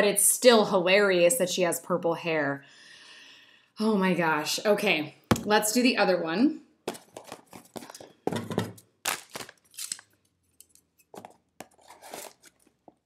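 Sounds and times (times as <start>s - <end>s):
package rustling: 6.9s - 13.0s
scissors snipping packaging: 9.0s - 12.7s.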